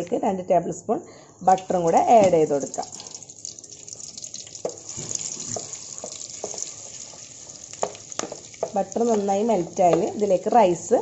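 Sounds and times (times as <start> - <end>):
butter sizzling in oil: 2.4 - 11.0
wooden spatula clicking on pan: 5.5 - 6.8.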